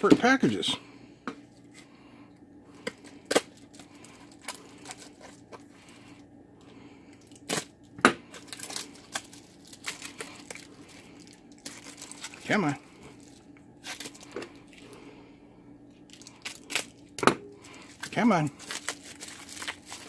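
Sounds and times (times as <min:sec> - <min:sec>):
bubble wrap rustling and tearing: 0:03.0 - 0:05.7, 0:07.2 - 0:07.7, 0:08.3 - 0:14.9, 0:16.0 - 0:20.0.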